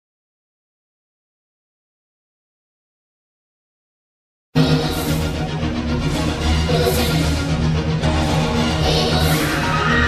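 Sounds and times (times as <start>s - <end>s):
music: 4.6s - 10.0s.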